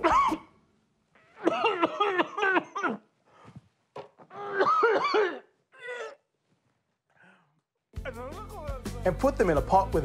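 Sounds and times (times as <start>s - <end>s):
man coughing: 0.0s - 0.6s, 1.4s - 3.1s, 4.4s - 6.2s
man wailing and sobbing: 8.0s - 9.1s.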